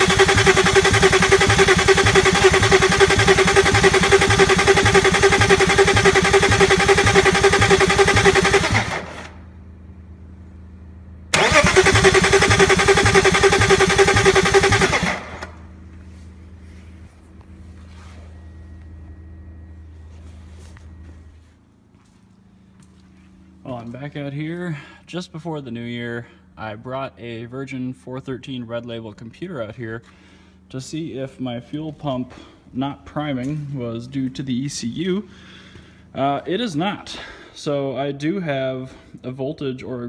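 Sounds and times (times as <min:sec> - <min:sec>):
engine cranking on starter: 0:00.0 - 0:09.4, 0:11.3 - 0:15.7
faint low hum: 0:00.0 - 0:40.0.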